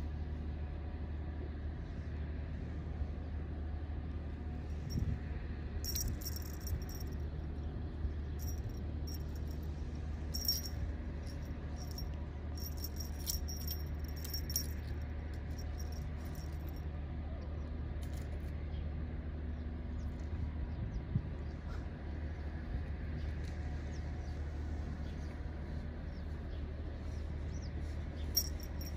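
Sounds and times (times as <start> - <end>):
steady low hum: 0.0 - 16.8, 19.2 - 28.9
toy bells jingling: 5.9 - 7.1, 8.4 - 9.6, 10.4 - 14.9, 15.6 - 16.8, 28.4 - 28.9.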